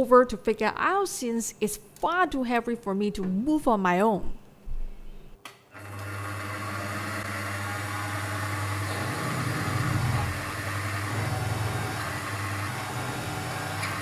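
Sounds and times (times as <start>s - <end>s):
milling machine motor humming: 5.8s - 14.0s.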